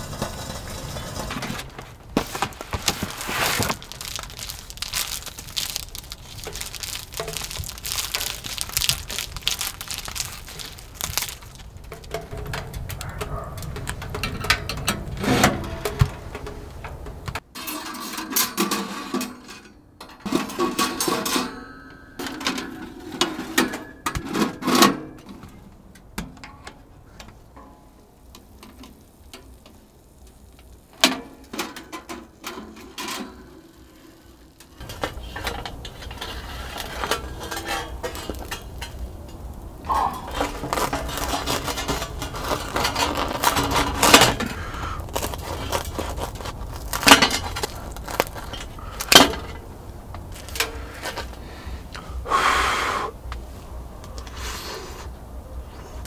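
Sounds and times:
steady low rumble: 0.0s - 17.4s
small metal items clattering: 0.0s - 25.7s, 26.4s - 51.4s.

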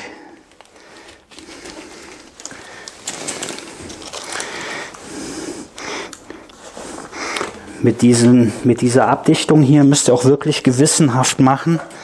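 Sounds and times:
man breathing hard: 0.0s - 7.8s
tape scraping and rustling: 0.5s - 7.7s.

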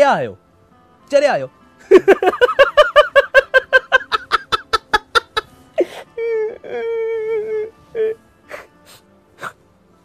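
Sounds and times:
man laughing heartily: 1.8s - 6.2s.

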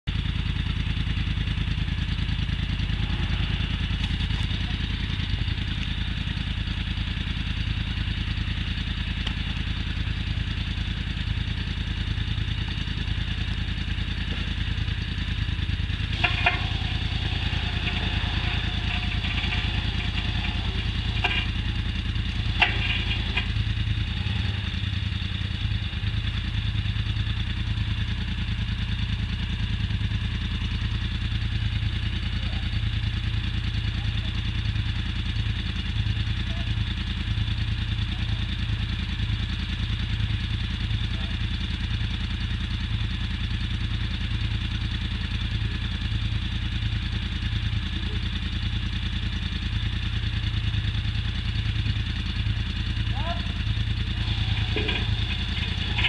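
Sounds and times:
quad bike engine idling: 0.0s - 56.0s.

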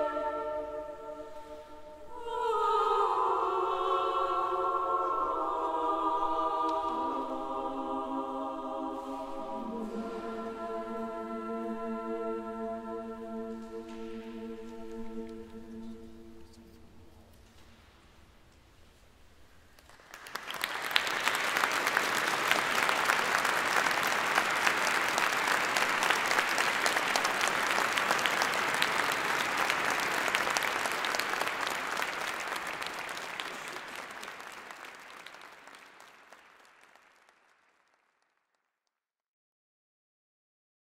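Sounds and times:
audience applauding: 19.8s - 38.4s.

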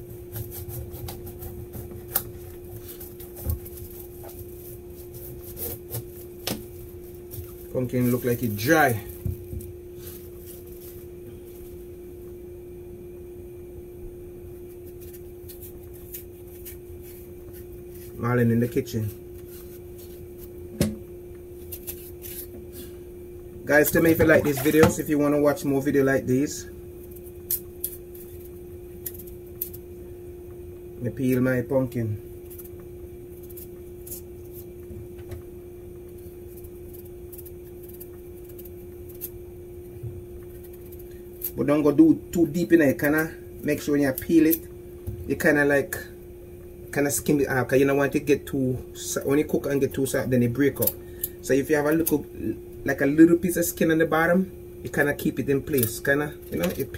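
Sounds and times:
knife scraping pumpkin skin: 0.0s - 11.8s, 14.6s - 20.6s, 21.6s - 22.9s, 23.7s - 25.1s, 32.4s - 34.8s, 36.2s - 39.4s
steady low hum: 0.0s - 56.9s.

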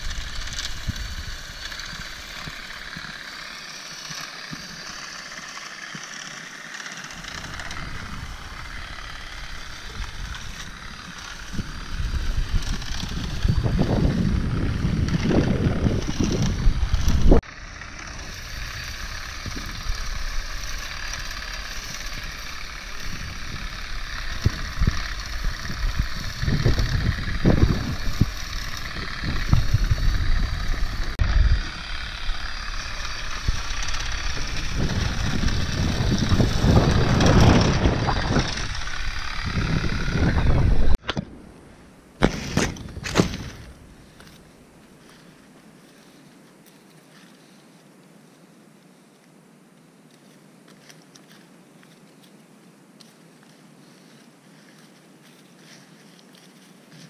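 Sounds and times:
olive shaker motor whine: 0.0s - 57.0s.

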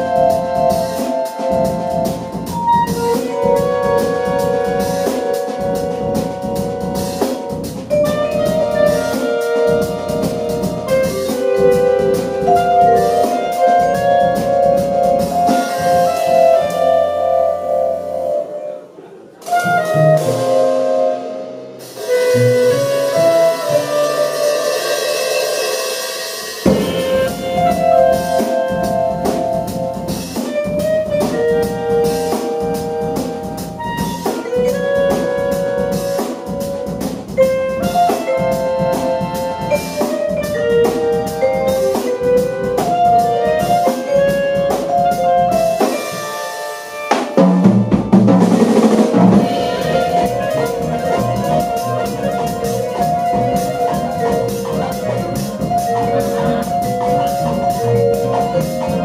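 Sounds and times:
jazz ensemble playing: 0.0s - 59.0s.

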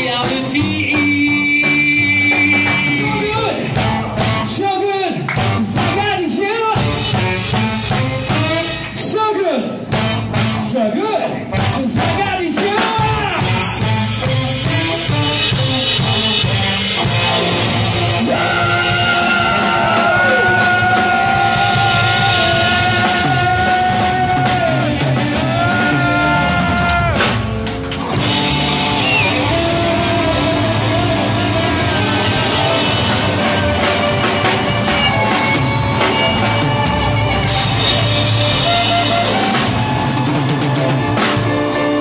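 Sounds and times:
man singing: 0.0s - 7.1s, 10.7s - 13.9s, 18.1s - 27.0s, 28.8s - 33.7s
drum kit: 0.0s - 42.0s
electric guitar: 12.9s - 42.0s
tenor saxophone: 28.1s - 42.0s.

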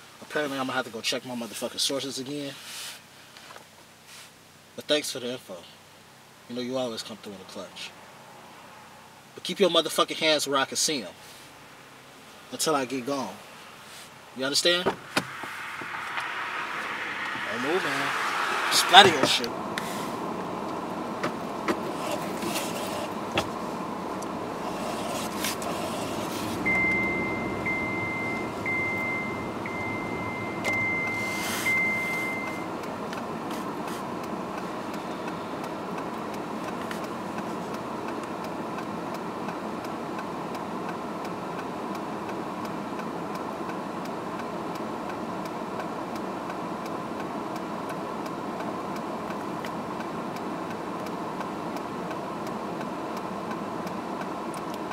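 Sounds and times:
car cabin engine hum: 13.0s - 54.9s
car warning chime beeping: 26.6s - 33.4s.

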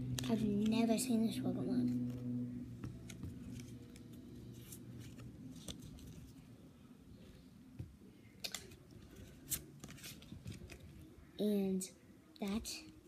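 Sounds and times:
cards snapping: 2.9s - 6.3s, 8.4s - 10.9s
trading cards sliding: 2.9s - 6.4s.

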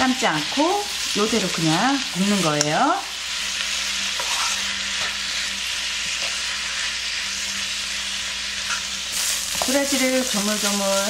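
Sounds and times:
roots sizzling in a frying pan: 0.0s - 11.0s
wooden spatula scraping: 4.1s - 4.8s.

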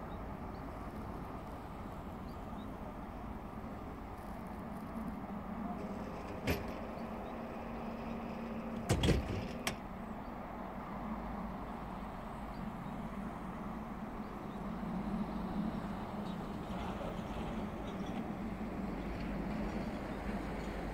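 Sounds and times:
locomotive engine idling: 5.6s - 10.0s.

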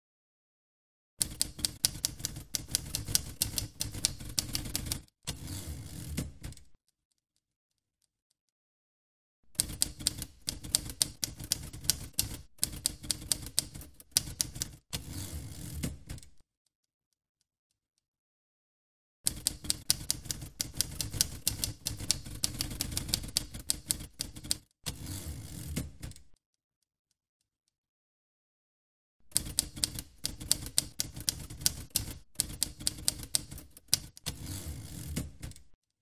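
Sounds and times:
typewriter mechanical noise: 1.2s - 6.7s, 9.6s - 16.2s, 19.3s - 26.2s, 29.3s - 35.7s
manual typewriter typing: 1.2s - 6.8s, 9.5s - 16.4s, 19.3s - 26.3s, 29.3s - 35.8s.

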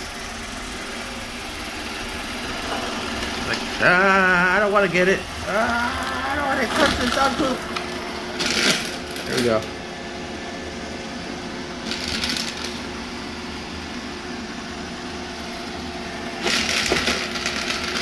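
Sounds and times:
robot vacuum motor hum: 0.0s - 18.0s
debris crackling and crunching: 1.4s - 9.6s, 16.4s - 18.0s.

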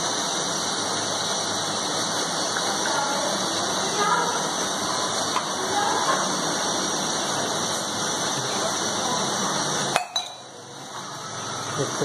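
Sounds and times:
sharp burner click: 0.0s - 8.3s
gas burner hissing: 0.0s - 12.0s.

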